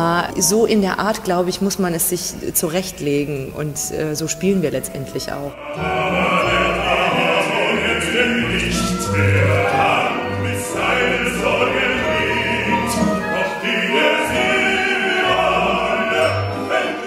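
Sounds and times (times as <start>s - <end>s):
instrumental ensemble: 5.5s - 17.0s
opera voices singing together: 5.5s - 17.0s.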